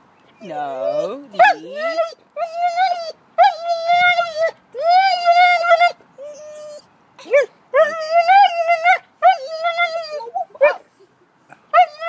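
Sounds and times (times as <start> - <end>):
dog yelp: 0.8 - 10.8
dog howl-like whines: 1.4 - 6.8, 7.8 - 10.8.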